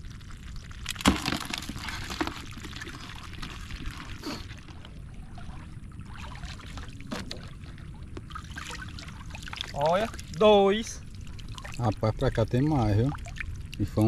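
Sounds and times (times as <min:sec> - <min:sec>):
water pouring off a net: 0:00.0 - 0:07.5
water sloshing around legs: 0:00.1 - 0:14.0.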